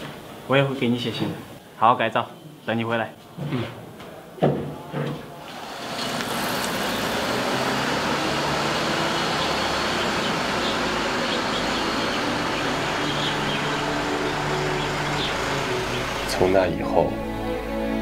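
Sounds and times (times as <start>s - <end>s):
van engine and tyre noise: 5.6s - 16.6s.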